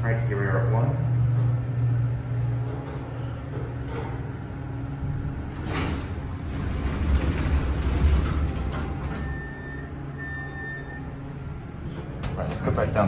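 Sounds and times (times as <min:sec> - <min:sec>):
elevator low rumble: 0:00.0 - 0:13.0
elevator doors sliding open: 0:02.6 - 0:13.0
electronic beeps: 0:09.1 - 0:11.1.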